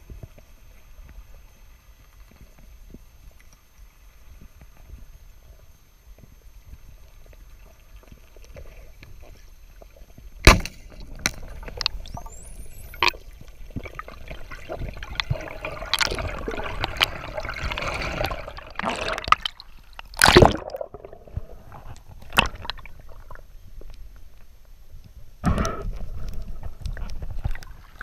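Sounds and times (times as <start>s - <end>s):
water rushing underwater: 10.9s - 23.5s.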